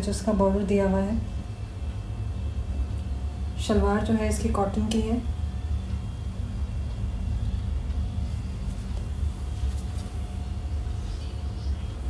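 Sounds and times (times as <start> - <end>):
faint hum: 0.0 - 12.0
low background rumble: 0.0 - 12.0.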